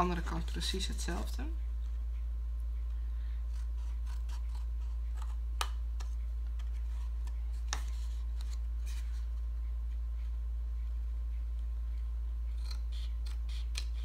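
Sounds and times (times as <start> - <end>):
steady low hum: 0.0 - 14.0
scissors snipping cardboard: 12.5 - 14.0.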